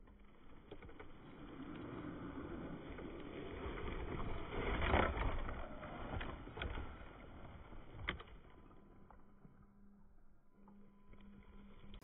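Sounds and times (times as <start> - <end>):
rc truck churning through snow: 0.0 - 7.9.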